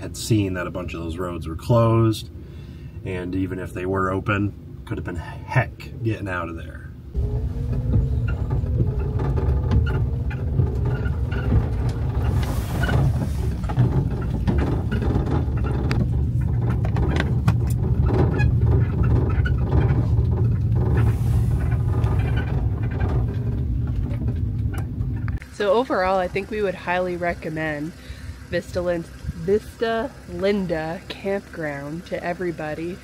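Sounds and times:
engine and tyres rumbling: 0.0s - 33.0s
light clicks and rattles: 7.2s - 25.6s.

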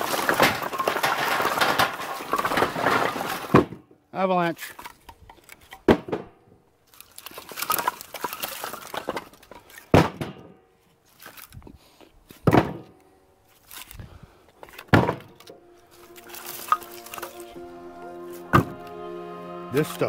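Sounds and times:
firewood landing with clunks: 0.0s - 3.9s, 4.6s - 6.5s, 7.4s - 10.6s, 11.2s - 13.0s, 13.6s - 15.6s
wood clattering knocks: 0.0s - 3.9s, 4.7s - 6.5s, 7.4s - 10.6s, 12.4s - 13.0s, 14.6s - 17.3s.

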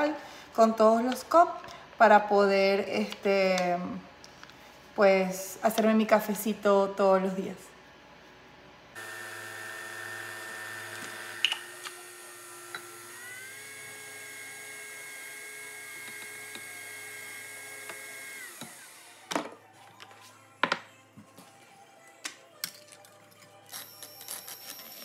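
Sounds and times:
coffee machine motor whine: 9.0s - 19.5s.

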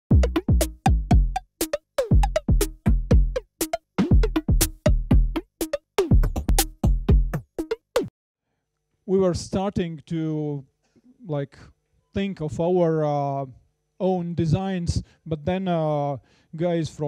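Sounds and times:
drum machine kicks: 0.1s - 8.1s
snappy drum machine hits: 0.1s - 8.1s.

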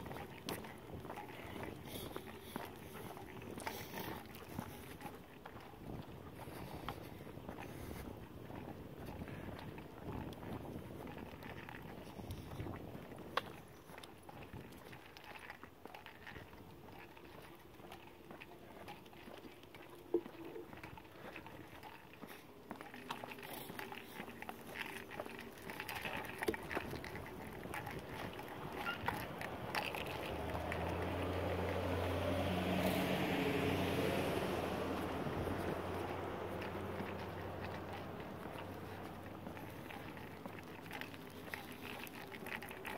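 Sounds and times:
footsteps on concrete: 0.0s - 10.7s
small ticks: 0.0s - 42.9s
vehicle engine and tyre noise: 0.0s - 42.9s.

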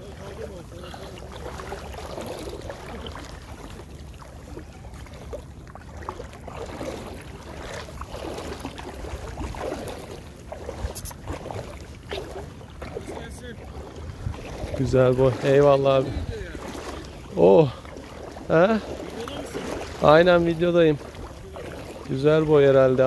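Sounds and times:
seawater lapping: 0.0s - 23.0s
wind rumbling on microphone: 1.4s - 17.4s.

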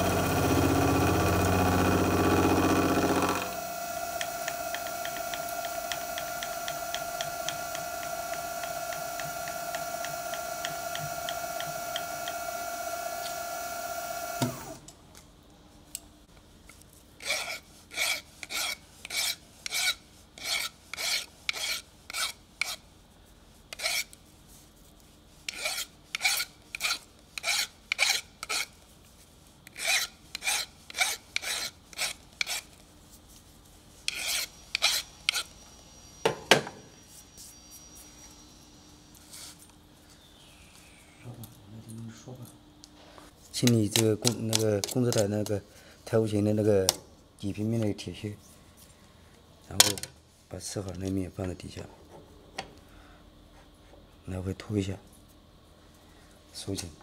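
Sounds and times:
milling machine whine: 0.0s - 14.8s
hand file rasping on metal: 17.2s - 22.8s, 23.7s - 24.2s, 25.5s - 28.7s, 29.7s - 32.7s, 34.1s - 35.5s.

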